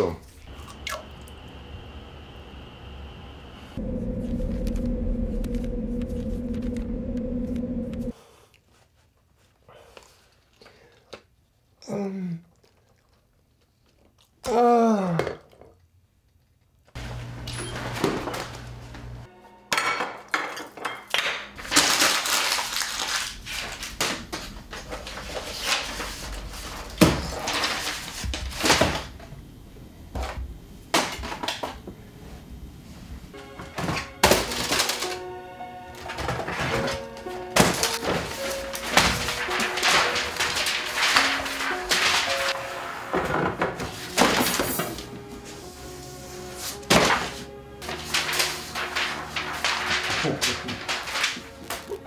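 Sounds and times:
man groaning: 14.4 - 15.4
music: 19.2 - 21.8, 33.3 - 52.0
objects thudding onto floor: 43.1 - 45.1.

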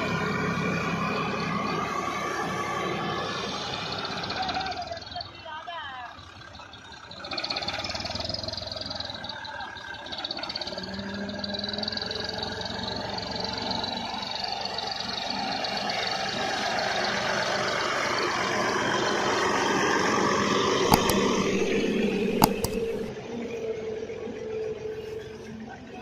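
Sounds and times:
tractor diesel engine running: 0.0 - 23.1
sharp knocks: 20.9 - 23.1.

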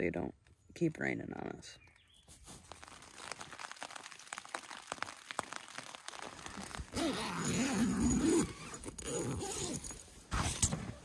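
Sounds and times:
tent fabric rustling: 2.2 - 11.0.

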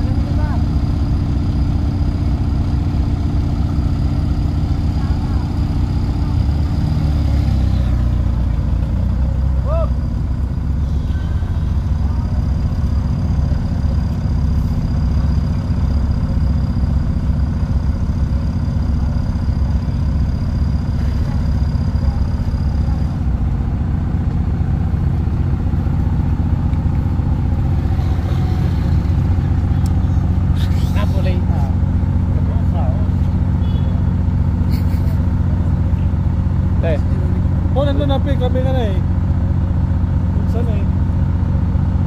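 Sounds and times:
heavy truck engine running: 0.0 - 42.0
thin high whine: 10.7 - 13.1.

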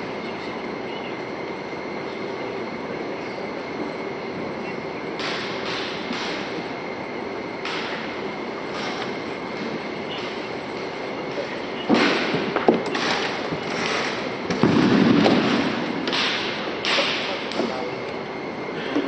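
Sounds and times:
synchronized stamps and slaps: 5.2 - 6.6, 7.6 - 8.1, 10.1 - 17.8.

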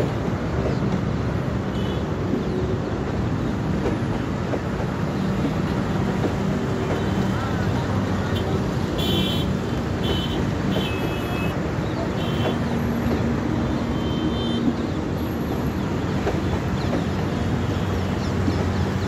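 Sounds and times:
train wheels rumbling on rails: 0.0 - 19.0.

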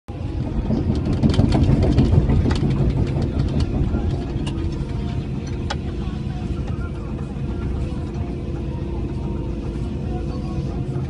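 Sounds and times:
sharp clicks and rattles: 0.1 - 8.2
excavator diesel engine running: 0.1 - 11.0.

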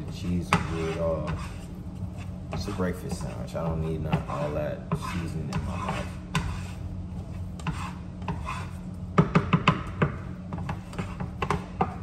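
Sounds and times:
utensil scraping frying pan: 0.0 - 9.7, 10.4 - 12.0
sharp knocks on pan: 9.2 - 10.2.

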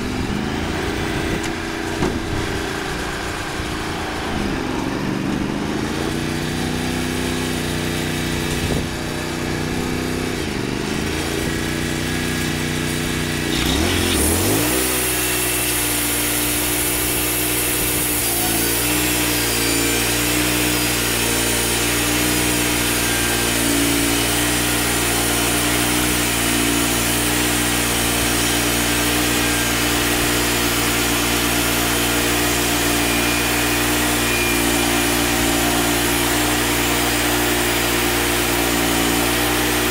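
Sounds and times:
sawmill engine running: 0.0 - 39.9
band blade cutting log hiss: 13.4 - 38.5.

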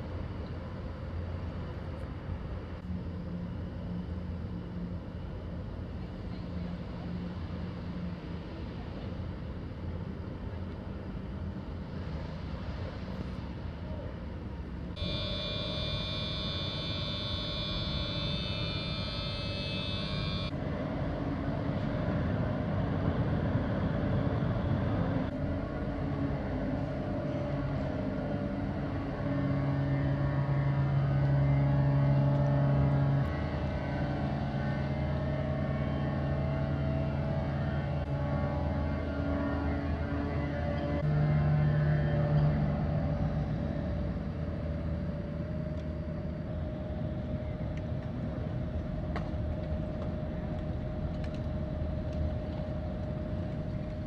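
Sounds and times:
engine and machinery drone: 0.0 - 54.0
high steady whine: 0.0 - 54.0
low hum: 0.0 - 54.0.

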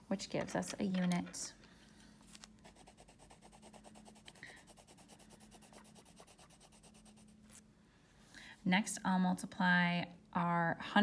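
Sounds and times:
colored pencil scratching on paper: 2.6 - 7.6.

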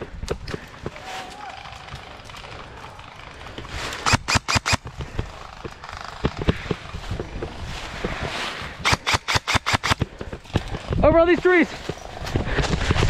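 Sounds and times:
airsoft guns firing: 4.0 - 6.8, 8.8 - 10.7.

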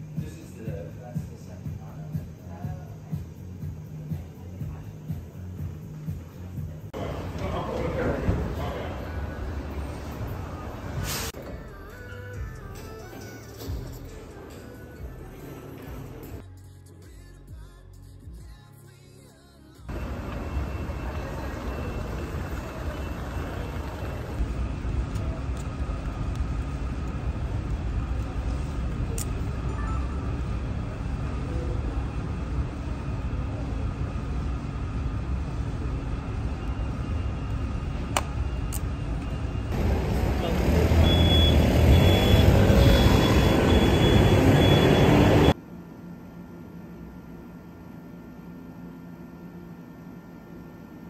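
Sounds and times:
store background rumble: 0.0 - 16.4, 19.7 - 51.0
passing vehicles rumbling: 35.3 - 45.6
high beep: 40.9 - 45.6.

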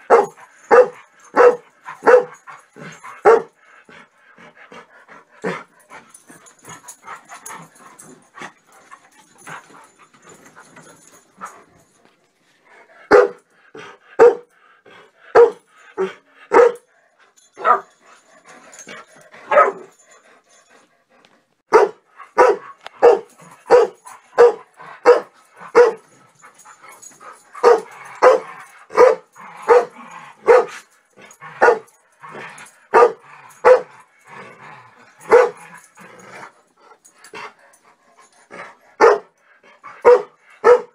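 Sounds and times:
dogs barking: 0.0 - 3.6, 13.1 - 14.5, 15.3 - 16.8, 17.6 - 18.0, 19.4 - 20.0, 21.7 - 26.1, 27.0 - 30.8, 31.6 - 32.0, 32.6 - 34.0, 35.2 - 35.9, 39.0 - 39.3, 39.9 - 40.9.

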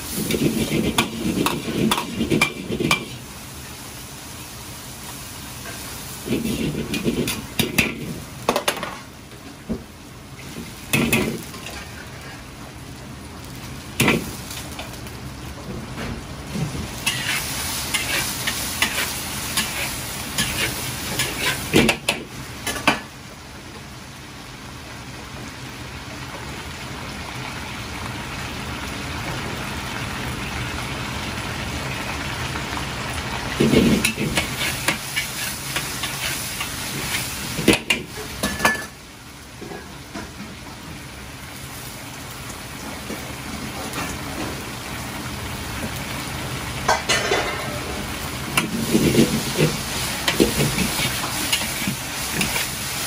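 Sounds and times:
chicken sizzling in wok: 0.0 - 53.0
metal ladle scraping wok: 0.2 - 3.0, 17.0 - 21.7, 33.7 - 37.2.

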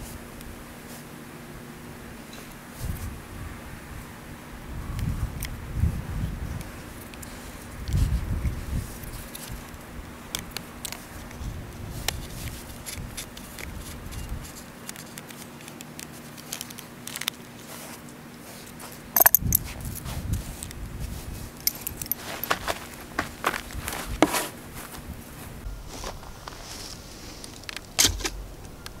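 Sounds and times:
plastic parts clicking and rattling: 12.8 - 17.4, 19.2 - 19.6.

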